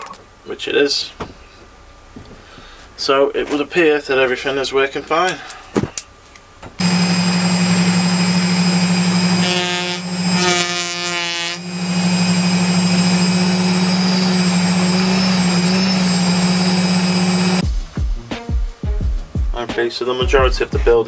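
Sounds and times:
wavering tone: 6.8 - 17.6
electric motor hum with whine: 6.8 - 17.8.

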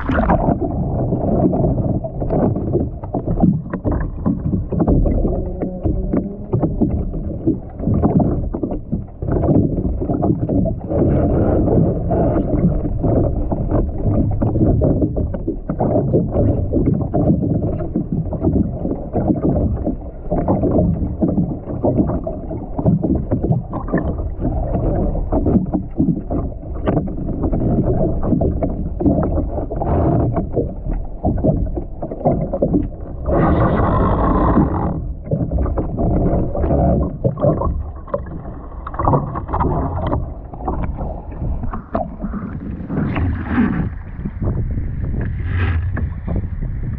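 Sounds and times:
bright water rush: 0.0 - 2.5
muffled underwater rushing: 0.0 - 46.9.

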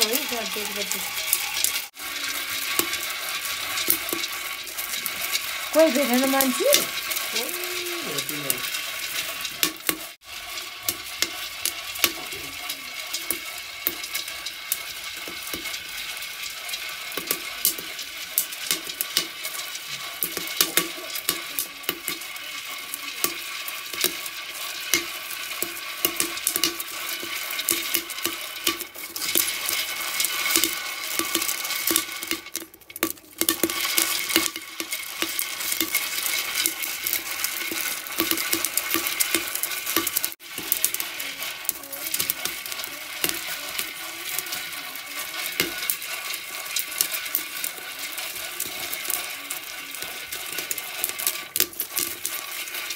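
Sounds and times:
seeds rattling in a clay pot: 0.0 - 52.9.

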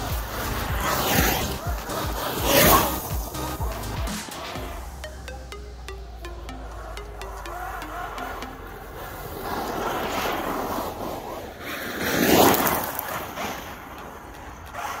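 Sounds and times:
tyres kicking up dirt: 8.6 - 15.0.

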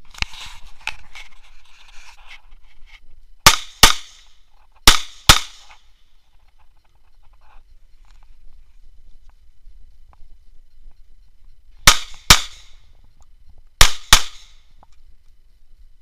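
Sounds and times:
pistol shots: 3.4 - 5.7, 11.8 - 12.8, 13.8 - 14.6.

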